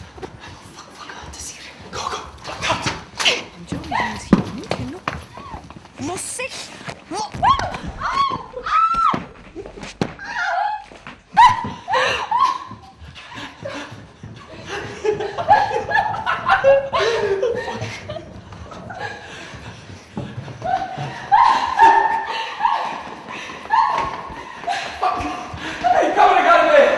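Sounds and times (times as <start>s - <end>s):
people speaking: 3.6s - 5.1s
people laughing: 9.5s - 26.9s.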